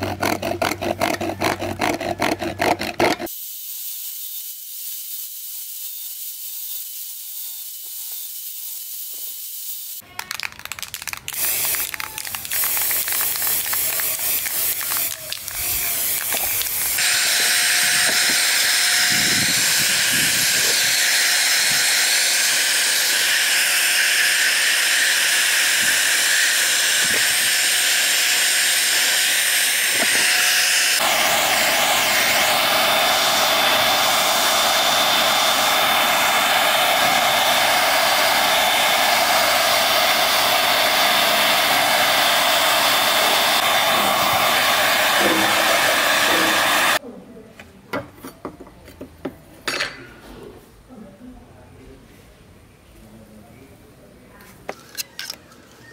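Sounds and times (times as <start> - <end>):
heat gun blowing: 11.3 - 47.0
angle grinder running: 11.4 - 47.0.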